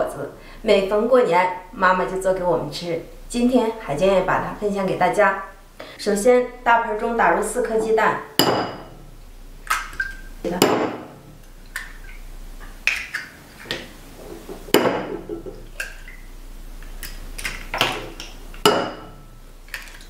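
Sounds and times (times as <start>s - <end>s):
eggs tapping on a porcelain bowl: 13.7s - 15.8s, 18.6s - 19.2s.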